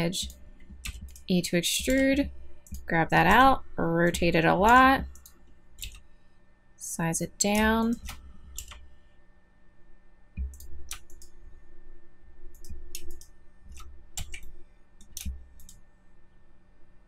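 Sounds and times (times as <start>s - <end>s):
keyboard key presses: 0.2s - 3.4s, 4.1s - 6.0s.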